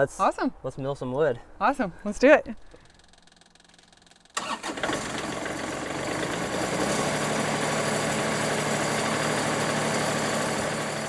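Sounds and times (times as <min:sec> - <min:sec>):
sawmill engine running: 0:04.4 - 0:11.0.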